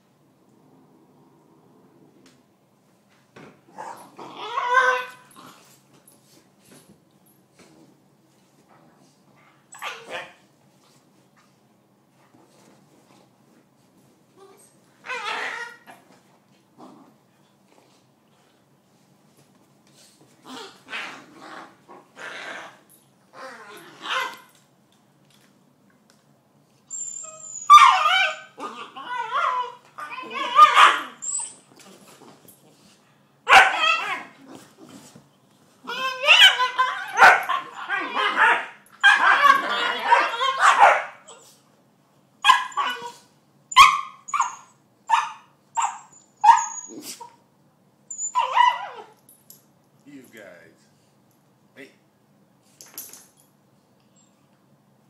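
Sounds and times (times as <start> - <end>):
puppy barking and yelping: 3.8 - 5.3, 9.7 - 10.4, 15.0 - 16.0, 23.6 - 24.5, 26.9 - 31.7, 33.5 - 34.4, 35.8 - 41.6, 42.4 - 47.4, 48.1 - 49.2
puppy barking: 30.4 - 31.2, 33.5 - 34.2, 36.2 - 41.3, 42.4 - 43.2, 43.8 - 46.7.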